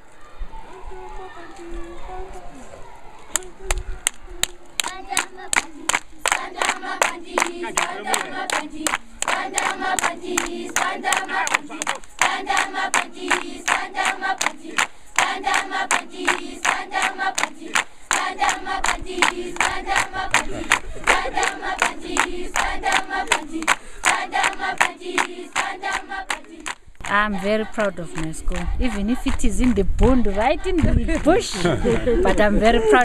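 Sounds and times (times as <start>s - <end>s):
rhythmic clapping: 3.3s - 33.0s
children singing: 4.4s - 26.7s.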